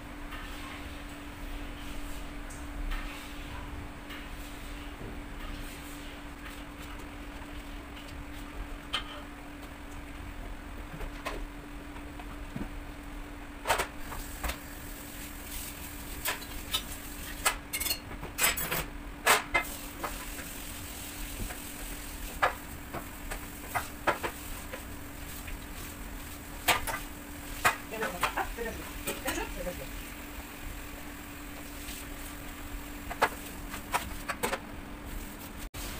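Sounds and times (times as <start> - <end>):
baking trays clicking and knocking: 17.4 - 19.7, 33.1 - 34.6.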